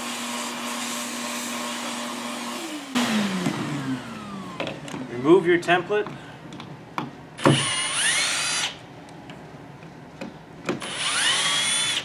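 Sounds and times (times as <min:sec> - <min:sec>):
cordless drill motor whining: 0:07.4 - 0:08.8, 0:10.8 - 0:12.0.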